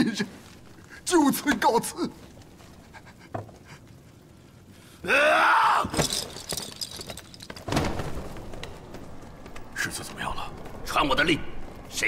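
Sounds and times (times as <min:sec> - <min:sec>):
person's anguished cry: 0:05.0 - 0:06.0.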